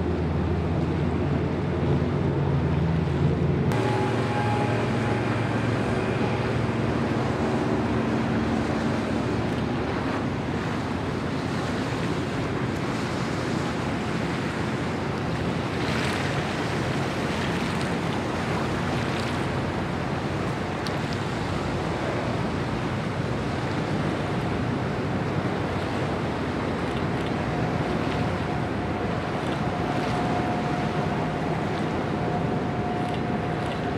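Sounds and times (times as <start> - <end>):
low hum: 0.0 - 11.3
water splashing and lapping: 0.1 - 33.9.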